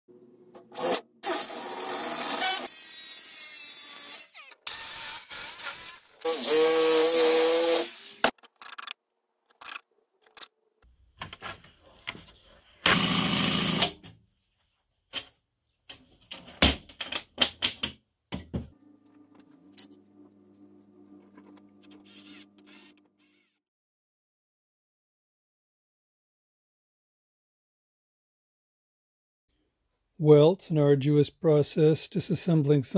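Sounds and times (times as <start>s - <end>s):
jigsaw cutting metal sheet: 0.6s - 8.4s, 12.9s - 14.0s, 22.0s - 23.7s
power tool burst: 0.7s - 8.3s, 12.9s - 13.9s.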